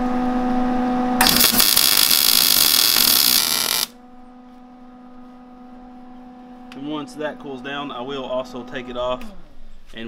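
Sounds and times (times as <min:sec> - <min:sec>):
low electrical hum: 0:00.0 - 0:10.0
welder arc crackling: 0:01.2 - 0:04.0.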